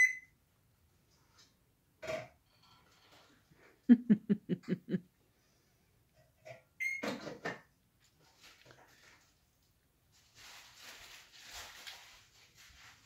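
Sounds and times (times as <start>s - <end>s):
person laughing: 3.9s - 5.1s.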